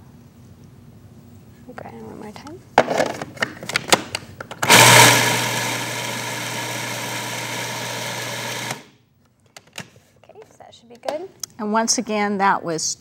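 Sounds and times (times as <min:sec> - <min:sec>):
food processor grinding nuts: 0:04.6 - 0:08.9.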